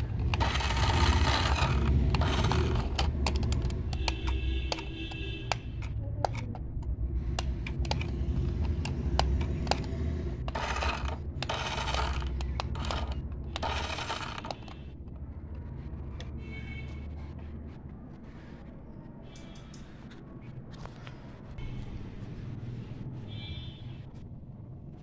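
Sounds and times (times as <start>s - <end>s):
plastic toy car clicks and rattles: 0.0s - 16.3s
steady low rumble: 5.5s - 14.3s.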